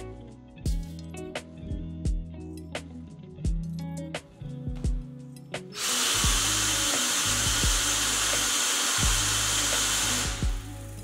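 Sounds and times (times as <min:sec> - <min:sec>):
background music with steady beat: 0:00.0 - 0:11.0
cordless drill motor running: 0:05.8 - 0:10.7.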